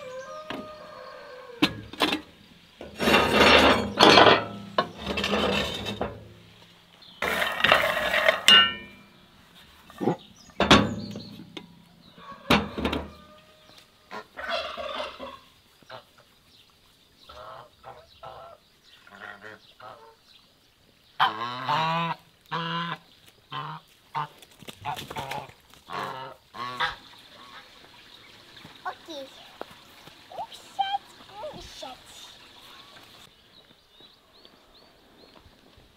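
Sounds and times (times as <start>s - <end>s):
farmyard fowl calling: 0.0s - 1.9s, 11.7s - 16.3s, 17.3s - 20.2s, 21.2s - 27.8s
sharp knocks and clatter: 10.6s - 11.7s.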